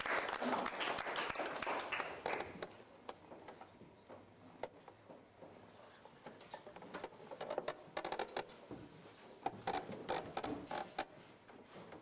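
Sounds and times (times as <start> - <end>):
small clicks and knocks: 2.6 - 8.8.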